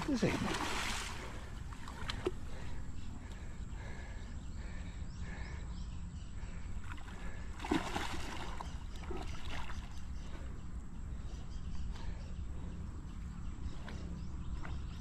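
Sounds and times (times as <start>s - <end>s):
fish thrashing and splashing: 0.0s - 2.7s, 7.1s - 9.9s
steady low rumble: 0.0s - 15.0s.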